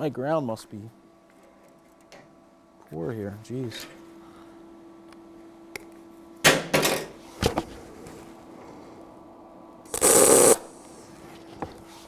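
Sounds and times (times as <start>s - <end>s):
welder arc crackling: 9.9s - 10.9s.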